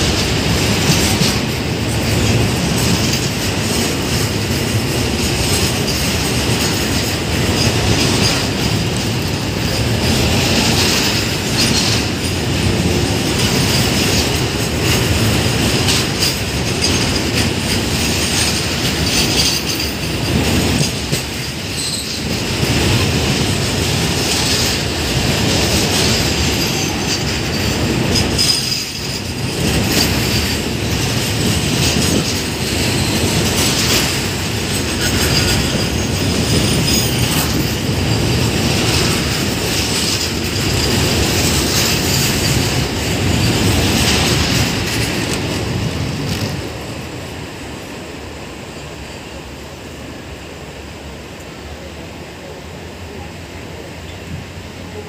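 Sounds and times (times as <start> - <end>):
freight wagons rolling on rails: 0.0 - 49.6
high wheel squeal: 21.7 - 22.4.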